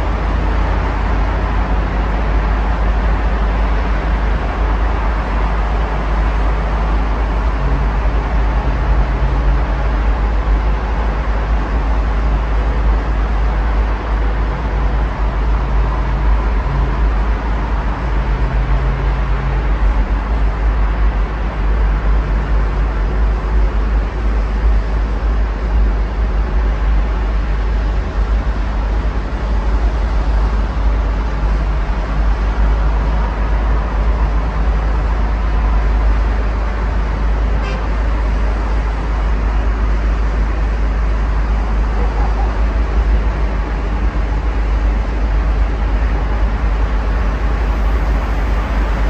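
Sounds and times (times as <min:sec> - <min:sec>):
road traffic noise: 0:00.0 - 0:49.0.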